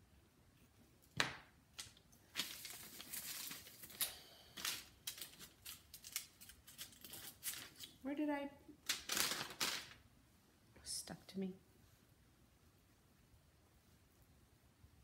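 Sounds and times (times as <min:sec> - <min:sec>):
clay scraping and rustling: 0:00.4 - 0:08.0.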